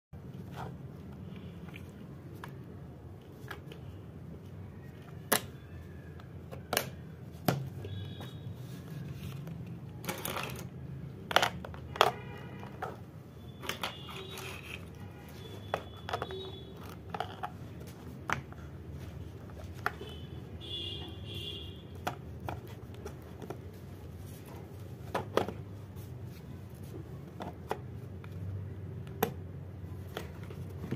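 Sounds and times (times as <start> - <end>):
pencils moving in box: 7.8 - 20.2, 21.9 - 28.4.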